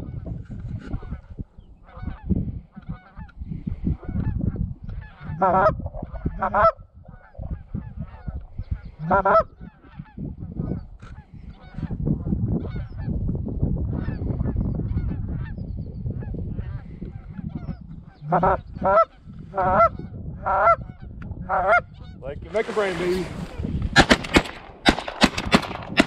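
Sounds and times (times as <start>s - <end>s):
geese honking: 1.8s - 3.4s, 4.0s - 11.9s, 16.6s - 22.9s.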